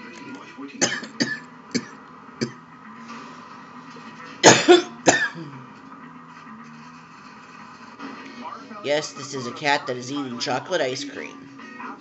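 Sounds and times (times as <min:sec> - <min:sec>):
person coughing: 0:00.8 - 0:02.6, 0:04.4 - 0:05.6.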